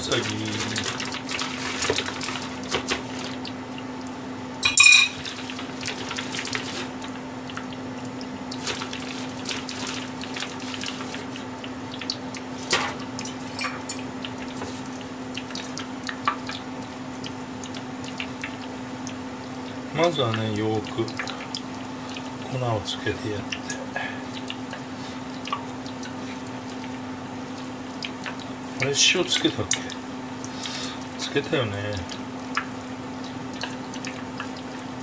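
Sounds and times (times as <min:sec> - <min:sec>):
metal bowl and utensils clinking: 0:04.6 - 0:05.4, 0:12.7 - 0:14.1.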